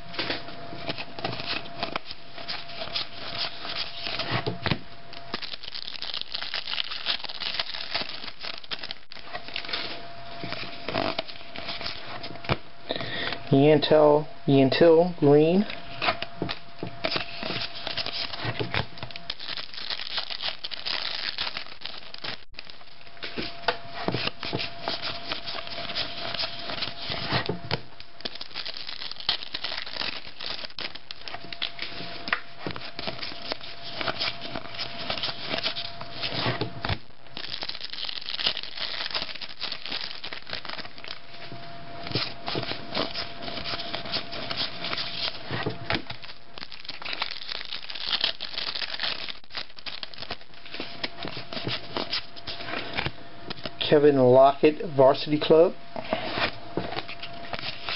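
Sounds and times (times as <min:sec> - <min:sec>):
cards rubbing and sliding: 0:00.2 - 0:04.5, 0:09.5 - 0:12.3, 0:17.0 - 0:18.8, 0:23.2 - 0:27.5, 0:28.2 - 0:41.5, 0:42.1 - 0:53.1
foil wrapper crinkling and tearing: 0:00.2 - 0:04.5, 0:05.1 - 0:12.3, 0:16.0 - 0:53.8, 0:56.4 - 0:57.9.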